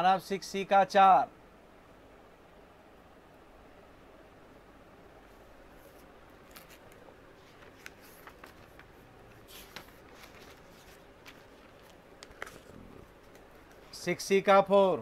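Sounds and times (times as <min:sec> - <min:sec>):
low steady hiss: 0:00.0 - 0:15.0
paper rustling: 0:05.8 - 0:14.0
light clicks of notebook: 0:05.9 - 0:12.7.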